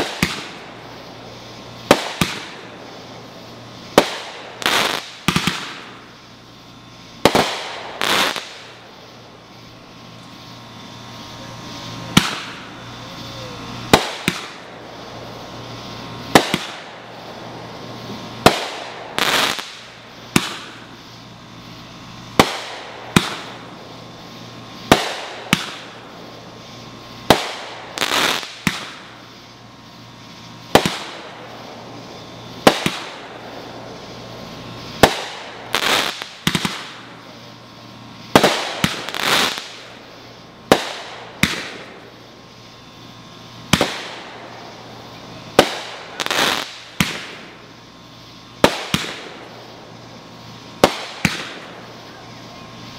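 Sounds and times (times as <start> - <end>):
firework pops and crackle: 0.0 - 0.8, 1.8 - 3.0, 3.9 - 6.2, 7.2 - 8.8, 12.1 - 13.3, 13.9 - 14.7, 16.2 - 16.9, 18.0 - 21.0, 22.3 - 23.6, 24.8 - 26.4, 27.2 - 29.3, 30.7 - 33.2, 34.8 - 37.2, 38.2 - 42.2, 43.7 - 44.6, 45.5 - 47.7, 48.6 - 49.7, 50.8 - 52.0
firework shells bursting: 0.0 - 52.1.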